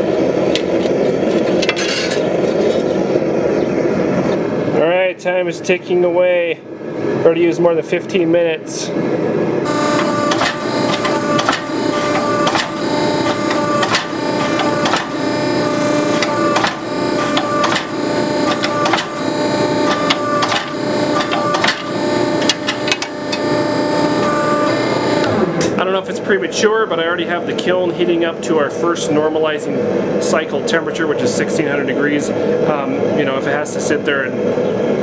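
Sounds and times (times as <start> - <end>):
forging press hum and whine: 0.0 - 35.0
sharp knocks of press dies: 9.7 - 25.8.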